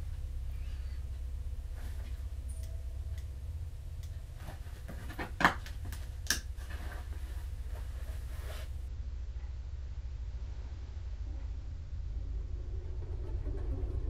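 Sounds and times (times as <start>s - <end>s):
steady low hum: 0.0s - 14.0s
bedclothes rustling: 0.4s - 3.3s, 3.9s - 8.9s.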